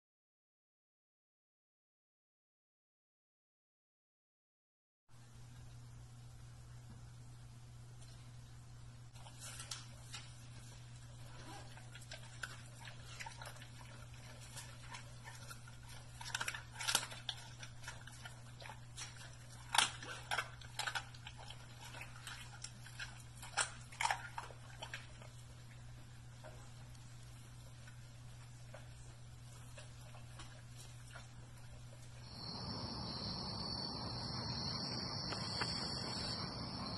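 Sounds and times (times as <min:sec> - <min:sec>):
steady low hum: 0:05.2 - 0:36.9
dog chewing and crunching: 0:09.1 - 0:32.7.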